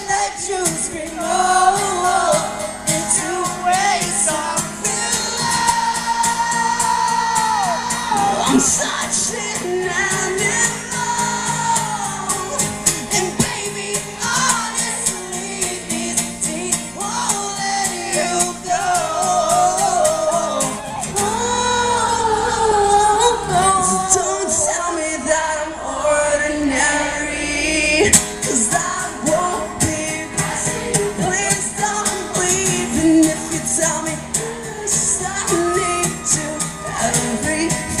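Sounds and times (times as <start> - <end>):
live rock band: 0.0 - 26.0, 26.7 - 38.0
person singing: 0.0 - 38.0.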